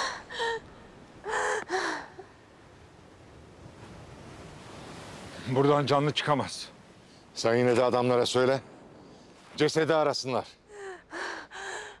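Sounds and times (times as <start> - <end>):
woman gasping and sobbing: 0.0 - 2.3, 10.7 - 12.0.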